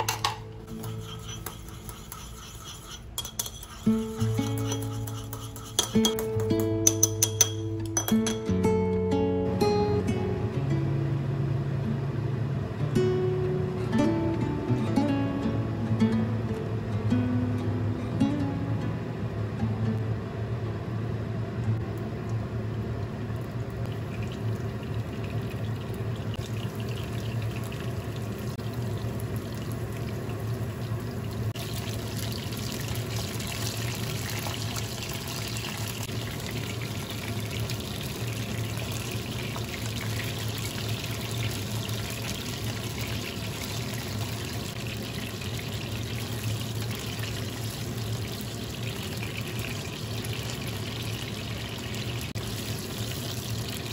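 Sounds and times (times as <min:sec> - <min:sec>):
chicken sizzling in hot oil: 0:23.5 - 0:53.9.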